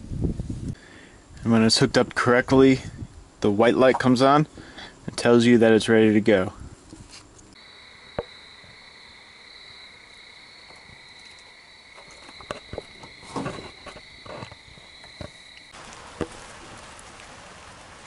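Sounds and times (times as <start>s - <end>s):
crickets trilling: 7.5s - 15.8s.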